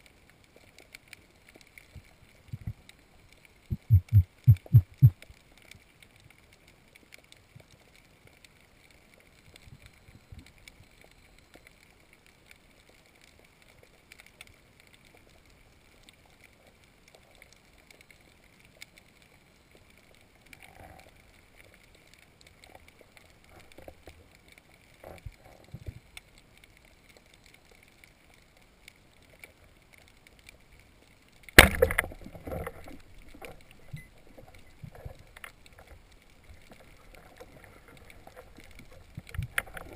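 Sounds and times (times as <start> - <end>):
faint high whine underwater: 0.0 - 39.9
small underwater clicks: 0.0 - 39.9
speargun firing crack: 31.6 - 32.2.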